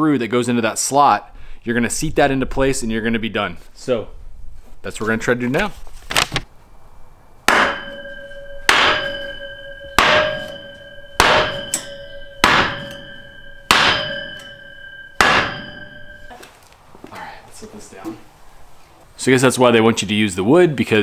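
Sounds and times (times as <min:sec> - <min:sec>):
metal pole slammed onto wood block: 0:07.5 - 0:16.3
metal pole ringing: 0:07.5 - 0:16.4.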